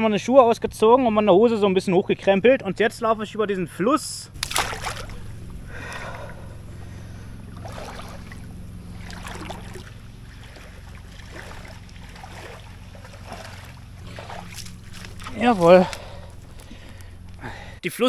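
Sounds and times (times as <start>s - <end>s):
low stream rumble: 0.0s - 17.8s
water sloshing around legs: 4.4s - 17.6s.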